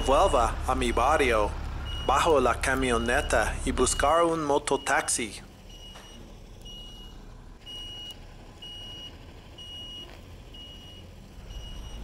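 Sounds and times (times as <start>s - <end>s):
bus engine running: 0.0s - 12.0s
reversing alarm beeps: 1.9s - 2.3s, 2.9s - 12.0s.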